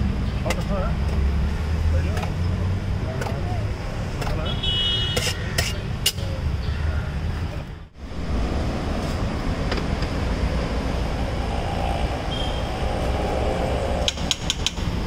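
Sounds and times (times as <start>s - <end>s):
street traffic rumble: 0.0s - 15.0s
sharp clicks: 14.0s - 14.9s.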